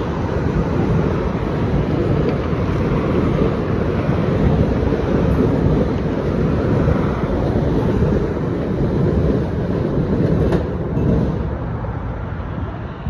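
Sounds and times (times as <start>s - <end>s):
train cars rolling on track: 0.0s - 13.0s
wind on microphone: 0.0s - 13.0s.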